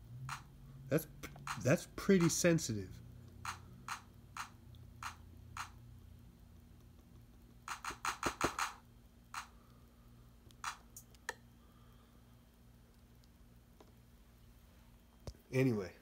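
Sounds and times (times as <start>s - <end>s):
fingers tapping drum pads: 1.3s - 2.4s, 3.5s - 5.8s, 7.7s - 8.8s.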